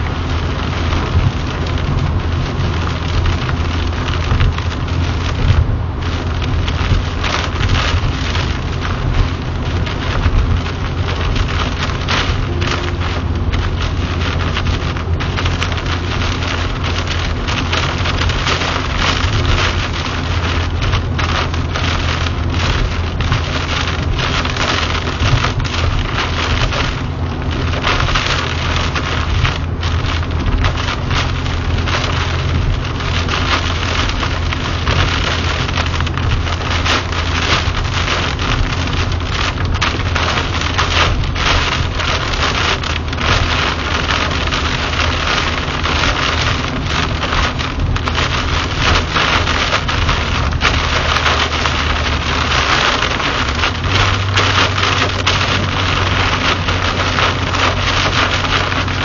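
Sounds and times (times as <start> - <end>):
car and tyres droning: 0.0 - 59.0
heavy rain on car roof: 0.0 - 59.0.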